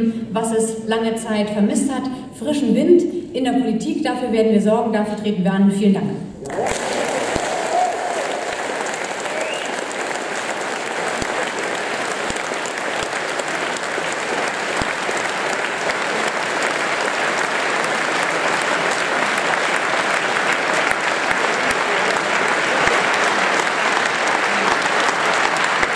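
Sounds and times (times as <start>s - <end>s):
audience applauding: 6.4s - 25.9s.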